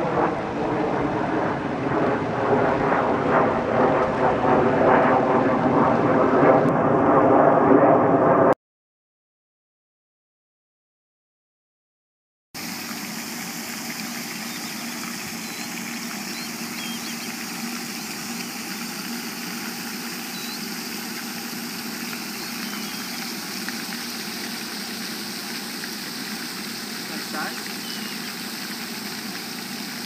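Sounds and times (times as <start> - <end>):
fountain water rushing: 0.0 - 2.3, 12.6 - 30.0
low steady hum: 12.6 - 30.0
faint high chirps: 14.4 - 17.4, 20.3 - 20.7, 22.3 - 23.4, 27.8 - 28.4.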